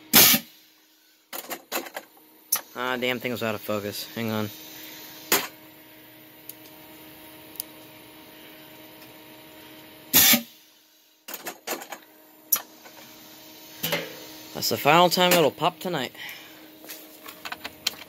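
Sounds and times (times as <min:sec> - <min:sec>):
loud blast of air: 0:00.1 - 0:00.6, 0:10.1 - 0:10.6.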